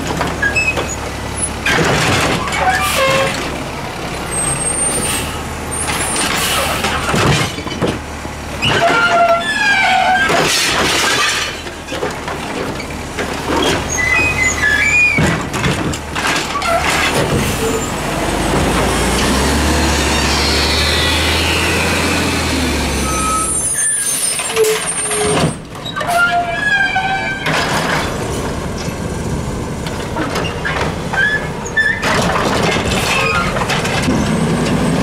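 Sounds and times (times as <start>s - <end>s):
clunks and bangs: 0.0s - 3.6s, 5.8s - 20.1s, 24.2s - 29.0s, 29.8s - 35.0s
short squeals: 13.9s - 15.2s, 23.0s - 27.6s.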